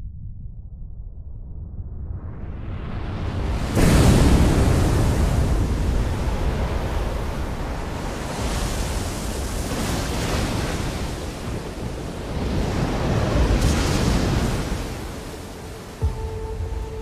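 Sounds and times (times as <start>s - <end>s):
deep rumble: 0.0s - 6.9s
wind: 1.6s - 17.0s
waves breaking on shore: 3.3s - 17.0s.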